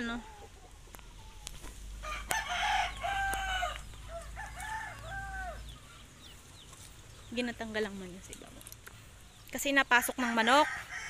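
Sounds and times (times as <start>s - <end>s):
rooster crowing: 2.0s - 5.8s, 10.2s - 11.0s.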